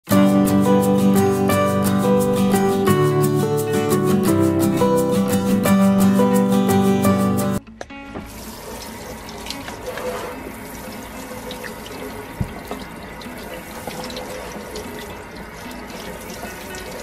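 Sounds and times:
tap running into steel sink: 11.5 - 13.0.

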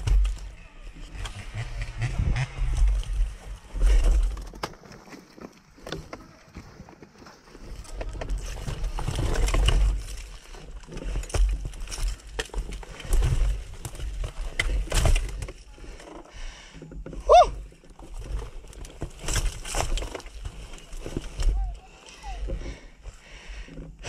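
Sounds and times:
stones clattering under tyres: 2.8 - 15.7, 17.0 - 21.6.

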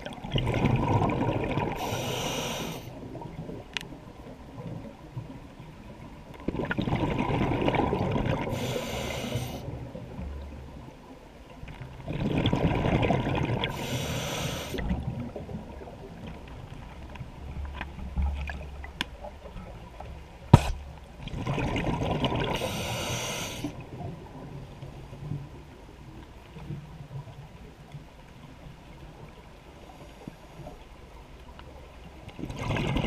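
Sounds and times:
scuba diver breathing underwater: 1.7 - 3.0, 8.5 - 9.7, 13.6 - 14.9, 22.5 - 23.8.

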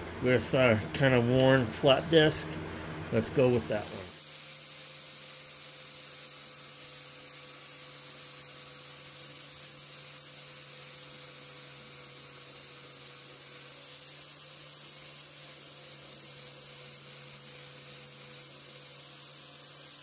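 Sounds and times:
steady low hum: 0.0 - 4.4.

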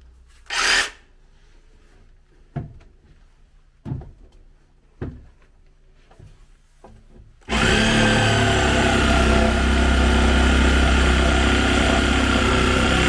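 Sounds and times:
cordless power tool whining: 7.4 - 13.0.

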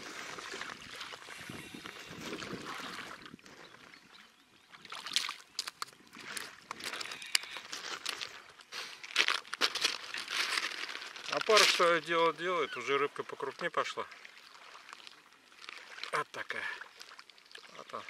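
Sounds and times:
water splashing at shoreline: 0.0 - 18.0
crunching on pebbly beach: 5.0 - 12.8.

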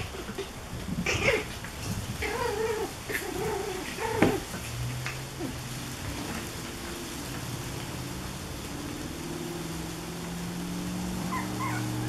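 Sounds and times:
puppies whining and yelping: 2.2 - 4.4, 11.2 - 12.0.

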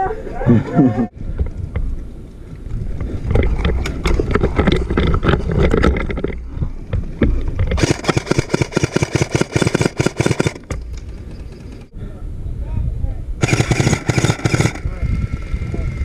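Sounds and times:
low rumbling noise: 0.0 - 16.0
paintball markers firing: 7.8 - 11.1, 13.4 - 14.8.

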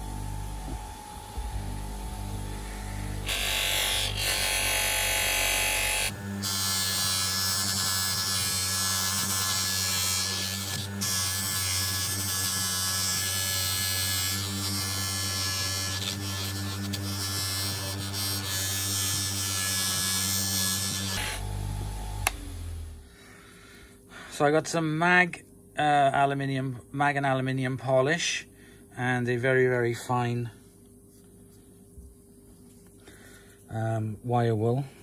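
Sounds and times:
bench polisher motor humming: 0.0 - 23.1.

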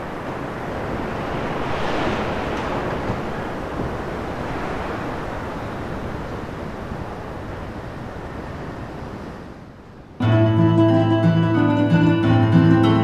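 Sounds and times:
steady rushing noise: 0.0 - 13.0
plucked-string music: 10.2 - 13.0.

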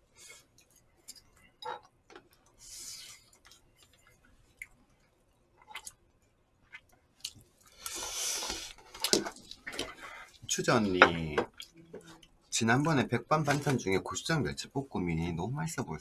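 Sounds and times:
chewing: 3.2 - 10.4.

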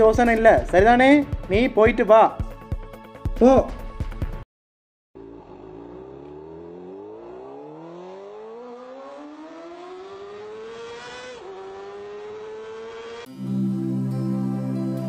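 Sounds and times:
motorcycle engine accelerating: 5.2 - 13.4.

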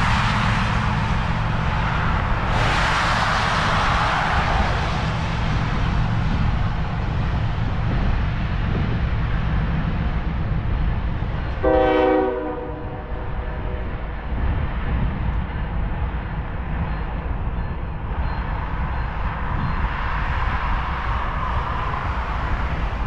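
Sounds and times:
hiss: 0.0 - 6.2
steady low rumble: 0.0 - 23.0
diesel locomotive horn blast: 11.5 - 14.0.

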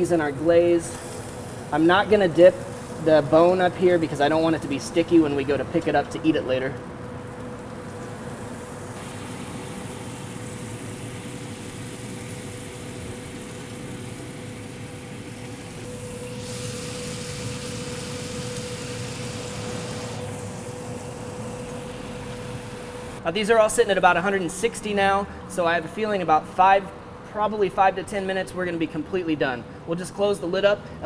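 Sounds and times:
grill hissing and humming: 0.0 - 26.8
brighter hiss: 8.9 - 23.2.

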